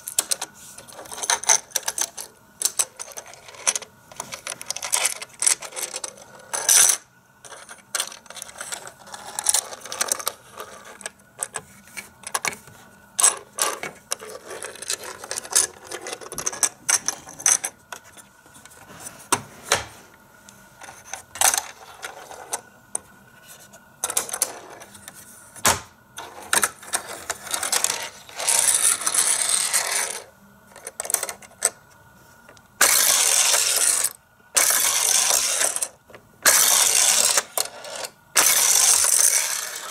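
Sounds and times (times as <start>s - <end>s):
toy cars and track clicking: 26.2s - 31.8s, 32.8s - 39.9s.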